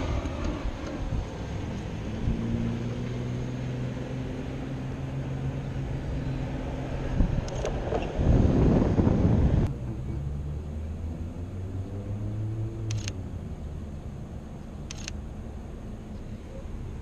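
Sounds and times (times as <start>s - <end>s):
low engine hum: 0.0s - 17.0s
low traffic rumble: 0.0s - 17.0s
camera shutter clicking: 7.4s - 7.8s, 12.8s - 13.2s, 14.8s - 15.2s.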